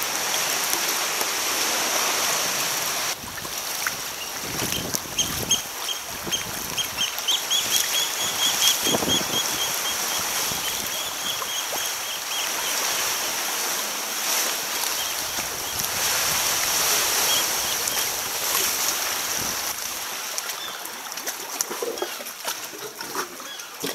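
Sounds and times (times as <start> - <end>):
sea water sloshing against rock: 0.0 - 23.9
bird piping: 4.2 - 12.9.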